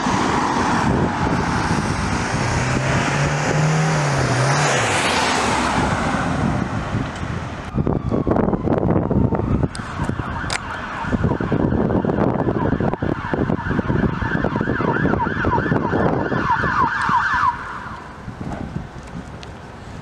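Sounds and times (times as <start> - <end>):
wind on microphone: 0.0 - 20.0
emergency siren yelping: 7.6 - 18.2.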